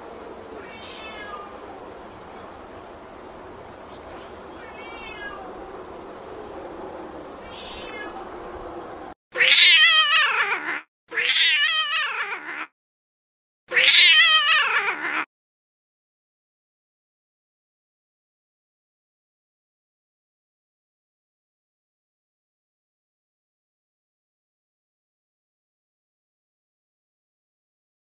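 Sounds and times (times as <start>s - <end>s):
cat meowing loudly: 0.6s - 1.7s, 4.5s - 5.6s, 7.4s - 8.2s, 9.4s - 12.7s, 13.7s - 15.3s
faint cat cries: 0.6s - 1.8s, 4.5s - 5.6s, 7.4s - 8.2s, 9.4s - 12.7s, 13.7s - 15.3s.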